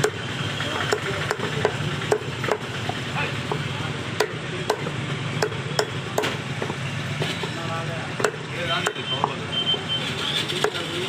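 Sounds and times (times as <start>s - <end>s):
knife chopping on wooden block: 0.8s - 7.3s, 8.2s - 9.4s.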